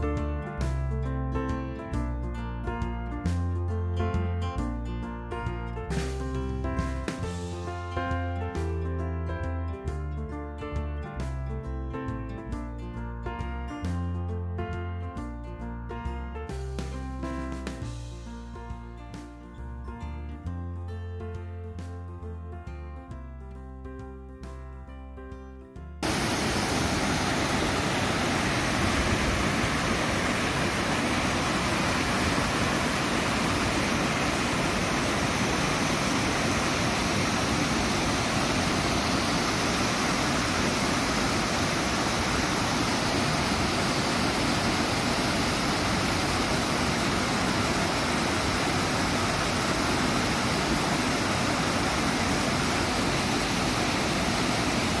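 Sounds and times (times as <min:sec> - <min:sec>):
guitar music: 0:00.0 - 0:22.3
waterfall rushing: 0:26.0 - 0:55.0.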